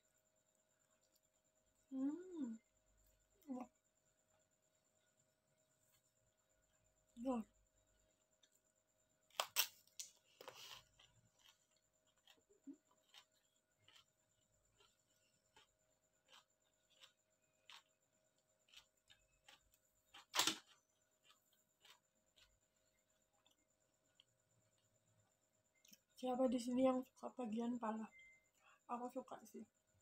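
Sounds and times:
cucumber crunching: 9.3s - 22.7s
quiet chewing: 9.9s - 26.1s.

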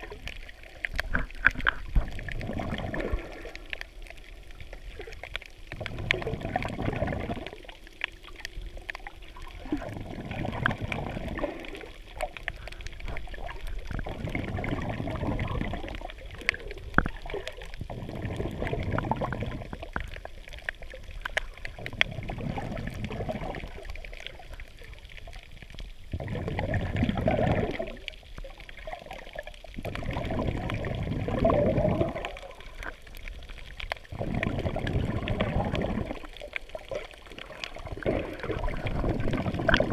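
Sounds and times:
water sloshing and gurgling: 0.0s - 39.9s
small clicks: 19.6s - 22.1s.

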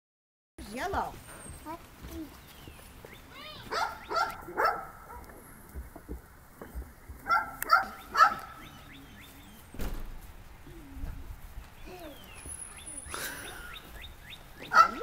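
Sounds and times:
dog barking: 3.6s - 5.4s, 7.2s - 8.8s, 14.6s - 15.0s.

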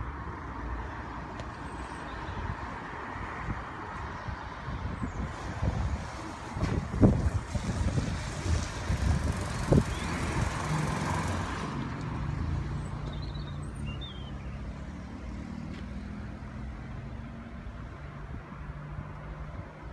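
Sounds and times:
wind buffeting microphone: 2.3s - 11.7s.

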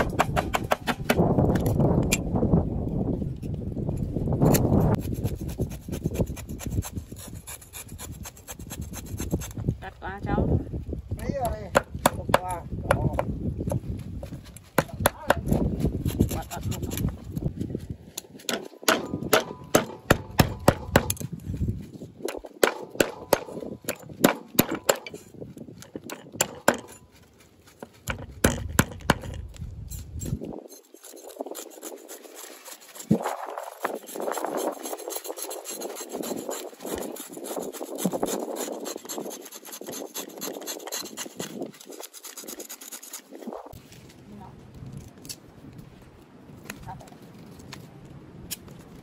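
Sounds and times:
knife knocking on wooden board: 0.0s - 1.2s
rasping scrape: 0.0s - 2.2s, 3.4s - 9.6s, 14.4s - 17.5s, 23.1s - 44.1s.

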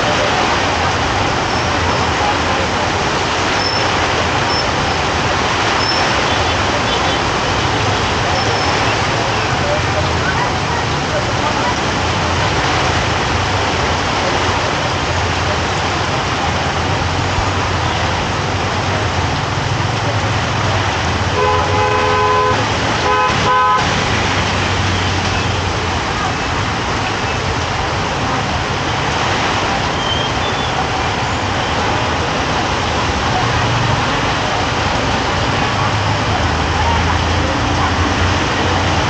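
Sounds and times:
street traffic: 0.0s - 39.0s
vehicle horn honking: 21.3s - 24.0s.

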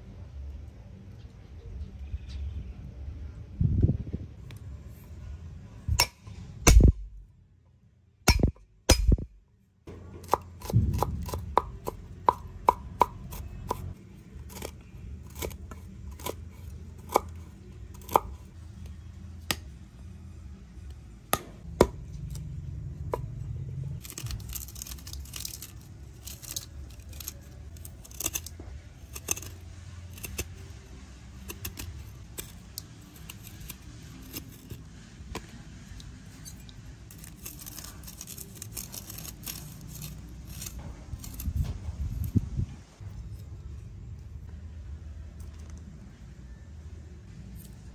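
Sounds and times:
steady low rumble: 0.0s - 7.4s, 10.6s - 14.0s, 40.8s - 45.4s.

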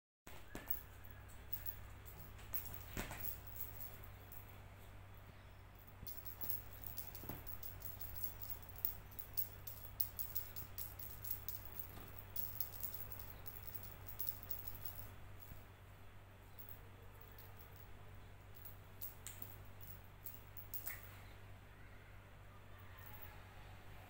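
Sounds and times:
feather toy rustling and rattling: 0.4s - 4.5s, 5.8s - 15.6s.

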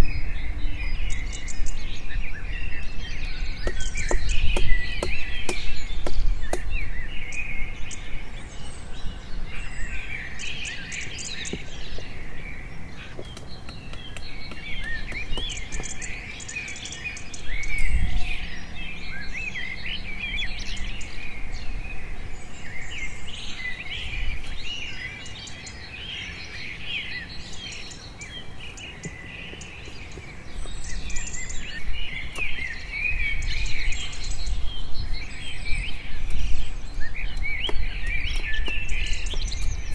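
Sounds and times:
small birds chirping: 0.0s - 39.9s
machete cutting bamboo stick: 3.6s - 6.8s.

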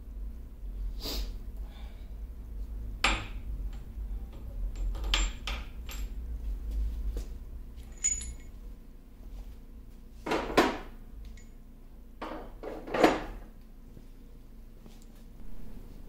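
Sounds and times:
metal pieces clinking and knocking: 4.7s - 6.2s, 7.8s - 8.5s.

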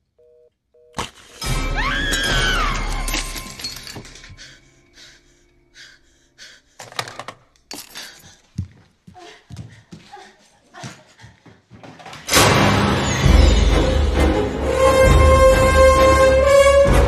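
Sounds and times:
woman screaming: 1.7s - 3.2s
loud crash with breaking: 12.3s - 14.2s
tense orchestral music: 12.3s - 17.0s.

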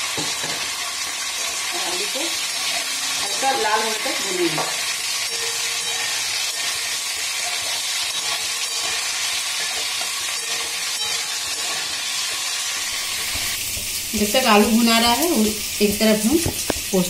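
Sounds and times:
spatula stirring in pan: 0.0s - 14.7s
potatoes sizzling in oil: 0.0s - 17.0s.

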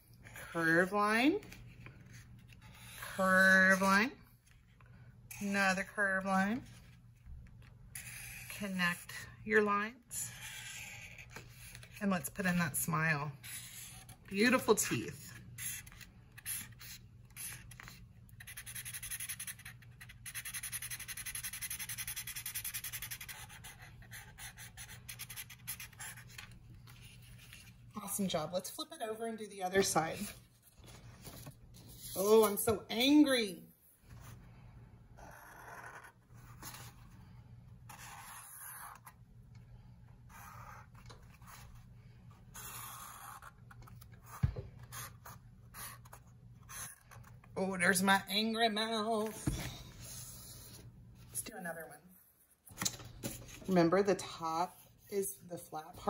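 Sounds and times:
marker scratching on paper: 2.0s - 3.9s, 7.9s - 9.2s, 10.0s - 12.7s, 13.4s - 27.8s, 31.4s - 32.6s, 35.2s - 37.0s, 37.9s - 39.2s, 40.2s - 41.8s, 42.5s - 47.3s
felt-tip marker scribbling on paper: 8.0s - 8.7s, 10.2s - 11.9s, 15.6s - 26.4s.

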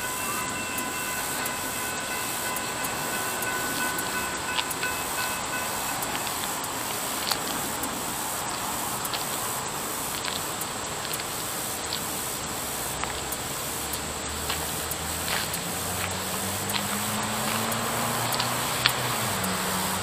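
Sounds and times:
locomotive low rumble: 0.0s - 9.1s
high-pitched insect drone: 0.0s - 20.0s
outdoor hiss: 0.0s - 20.0s
faint clicks: 0.3s - 19.5s.

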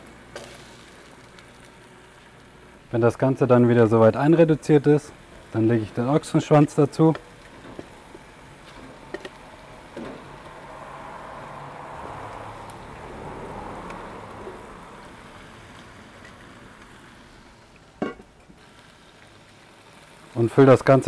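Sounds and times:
meat sizzling in a pan: 0.0s - 21.0s.

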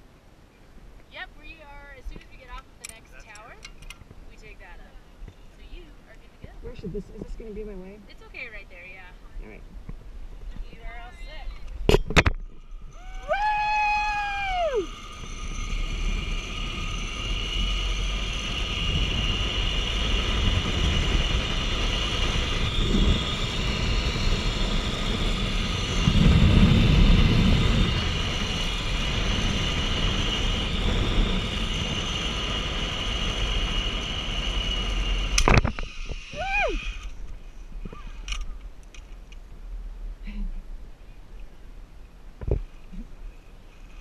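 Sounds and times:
wind buffeting microphone: 1.2s - 38.8s
zipline pulleys whining on cable: 10.8s - 39.2s.

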